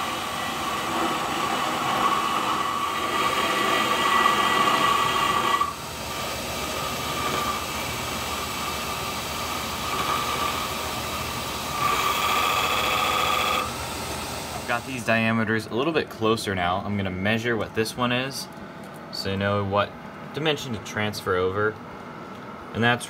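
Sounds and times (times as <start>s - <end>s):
metal lathe cutting whine: 0.0s - 14.8s.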